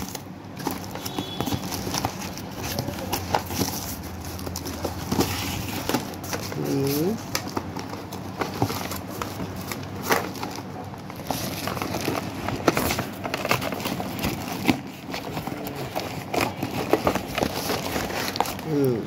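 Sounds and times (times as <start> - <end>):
cardboard box rustling: 0.0 - 19.0.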